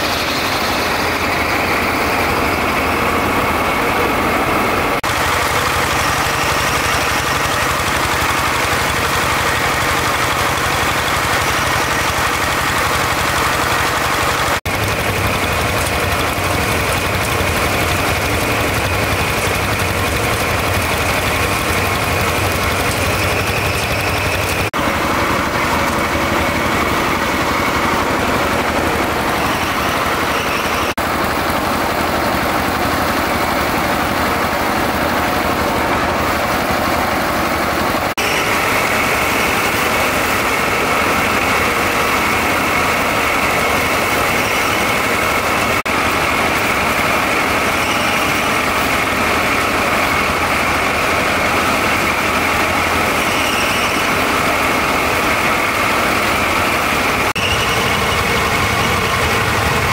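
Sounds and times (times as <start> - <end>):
rice thresher engine droning: 0.0 - 59.9.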